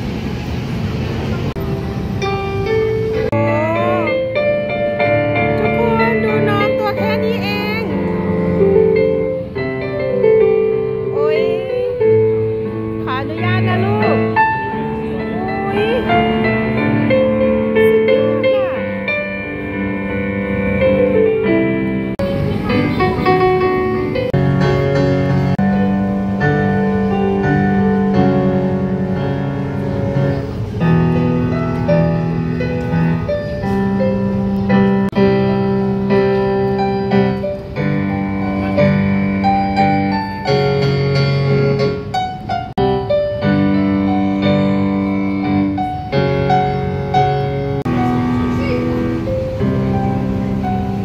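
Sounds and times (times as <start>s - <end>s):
digital keyboard piano tune: 1.4s - 51.0s.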